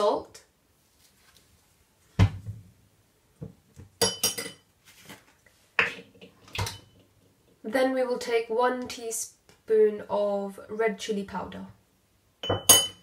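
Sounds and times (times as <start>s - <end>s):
spoon knocking on container: 12.4s - 13.0s.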